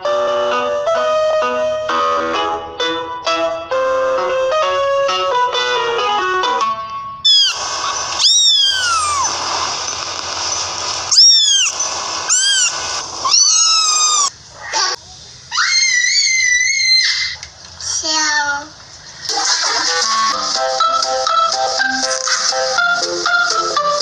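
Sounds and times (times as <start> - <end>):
kitten mewing: 7.3 - 9.4, 11.1 - 15.0
high squeal: 7.3 - 10.0, 11.1 - 14.3.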